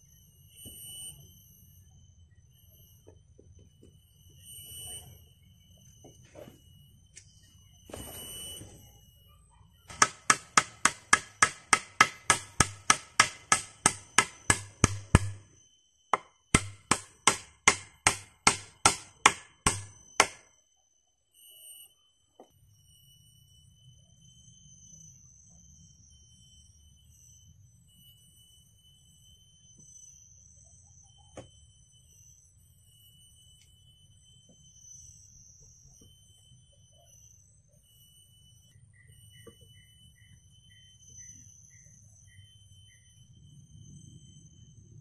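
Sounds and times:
tool striking wood: 0:09.9 - 0:15.5, 0:16.1 - 0:20.5.

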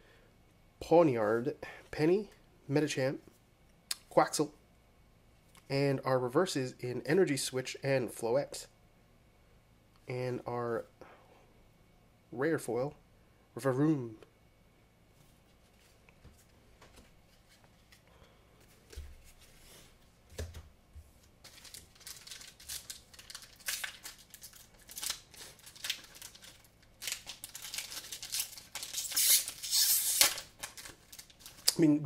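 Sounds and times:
foil pack crinkling: 0:21.3 - 0:31.9.

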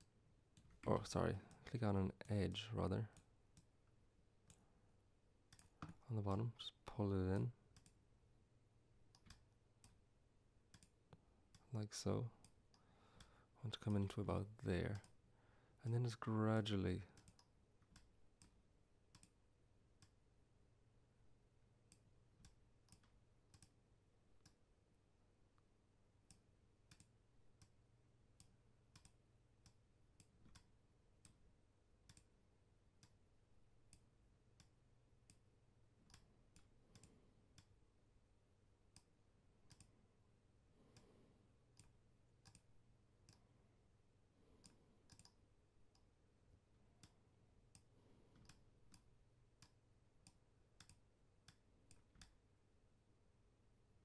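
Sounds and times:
computer mouse clicks: 0:05.5 - 0:06.4, 0:07.3 - 0:08.0, 0:09.1 - 0:10.0, 0:10.7 - 0:11.7, 0:14.8 - 0:15.2, 0:15.9 - 0:19.4, 0:21.9 - 0:23.8, 0:26.3 - 0:27.8, 0:28.4 - 0:31.4, 0:32.0 - 0:32.3, 0:33.9 - 0:37.8, 0:39.7 - 0:40.0, 0:40.8 - 0:43.5, 0:44.6 - 0:46.1, 0:47.0 - 0:52.4.

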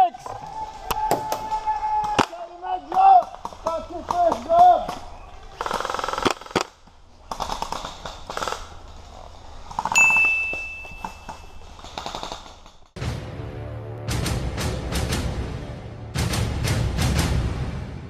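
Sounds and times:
airsoft guns firing: 0:03.4 - 0:08.8
music: 0:13.0 - 0:18.0.

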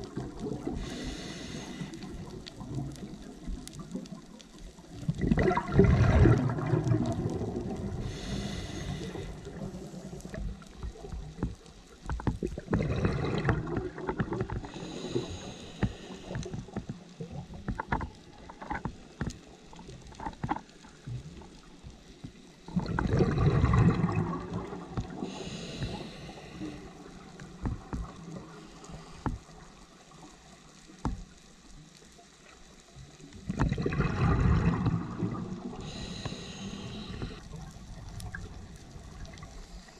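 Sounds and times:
exhaled bubbles underwater: 0:00.0 - 0:31.4, 0:32.4 - 0:39.9
regulator inhale hiss: 0:00.7 - 0:02.4, 0:08.0 - 0:10.4, 0:14.6 - 0:16.8, 0:25.1 - 0:27.4, 0:28.5 - 0:29.8, 0:35.7 - 0:37.5.

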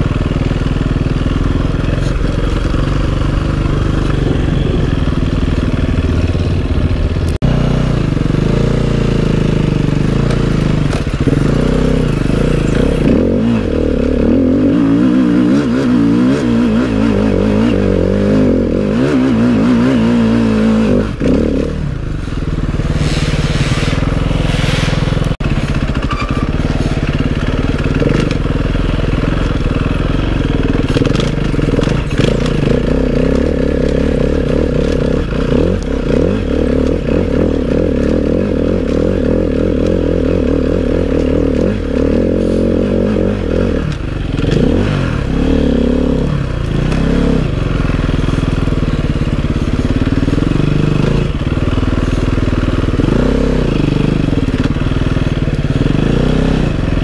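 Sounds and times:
dirt bike engine revving: 0:00.0 - 0:57.0
scraping and clattering from bike: 0:01.4 - 0:05.8, 0:10.0 - 0:13.5, 0:21.2 - 0:43.0.

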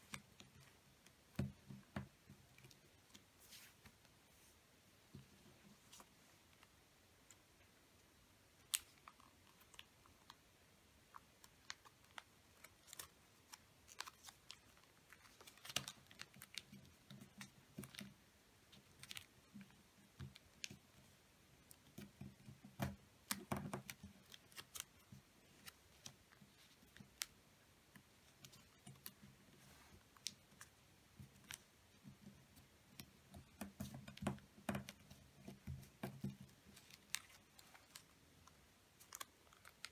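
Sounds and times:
paper being folded and creased: 0:11.4 - 0:20.8, 0:21.7 - 0:27.3, 0:33.4 - 0:39.9.

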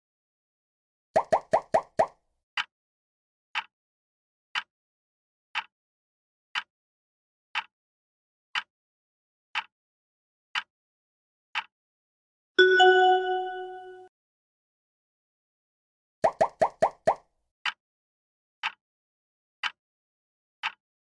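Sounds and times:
bell-like chime: 0:12.6 - 0:14.1
countdown timer ticking: 0:12.6 - 0:14.1.

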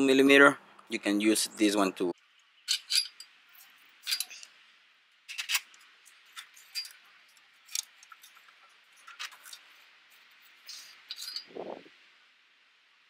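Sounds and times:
metal tools clinking on bolts: 0:02.7 - 0:04.5, 0:05.3 - 0:07.0, 0:10.6 - 0:11.5.

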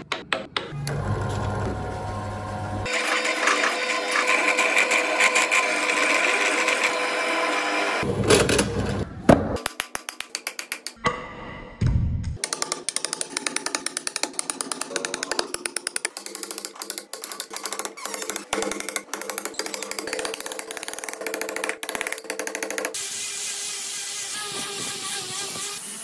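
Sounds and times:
angle grinder sanding wood: 0:01.3 - 0:08.0, 0:23.0 - 0:26.0.

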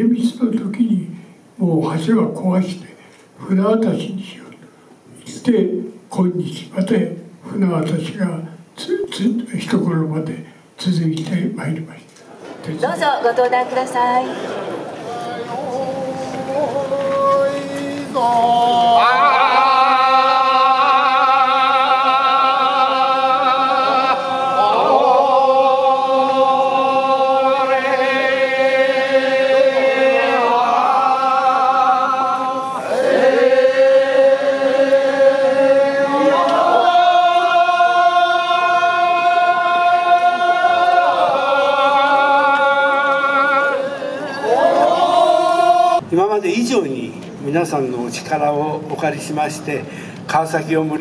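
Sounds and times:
men chanting in unison: 0:15.0 - 0:46.0.

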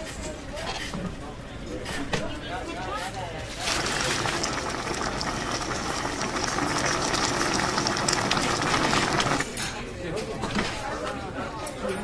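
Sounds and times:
soup boiling hard: 0:03.5 - 0:09.6.

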